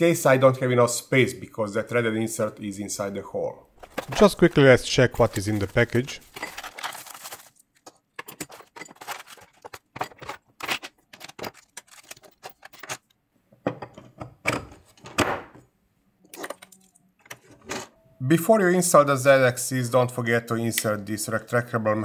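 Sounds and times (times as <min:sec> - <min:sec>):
packaging rustling: 0:03.8 - 0:13.0
plastic and metal parts clattering: 0:03.8 - 0:13.1.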